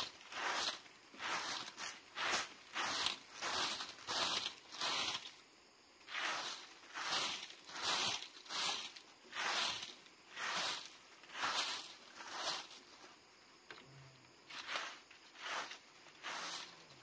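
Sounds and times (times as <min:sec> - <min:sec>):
broom sweeping dirt: 0:00.0 - 0:13.5, 0:14.4 - 0:17.0.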